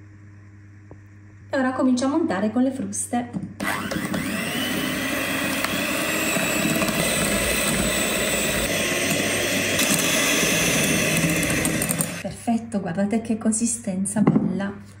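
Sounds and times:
electric hand mixer whining: 3.6 - 12.2.

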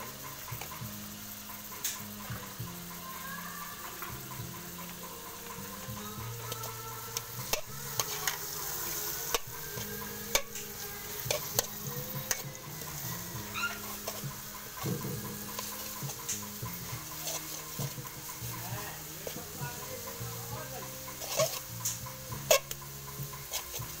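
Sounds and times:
food sizzling in hot oil: 0.0 - 24.0
metal spatula scraping a wok: 4.8 - 24.0.

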